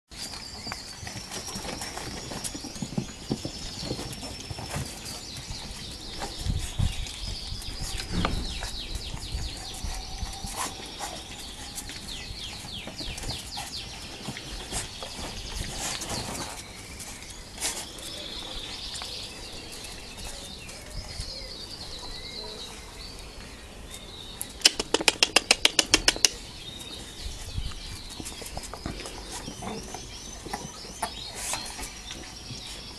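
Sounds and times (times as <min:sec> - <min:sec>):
small birds chirping: 0:00.1 - 0:32.9
puppies scuffling and knocking: 0:00.2 - 0:18.1, 0:24.6 - 0:32.9
low thumps: 0:07.9 - 0:09.3.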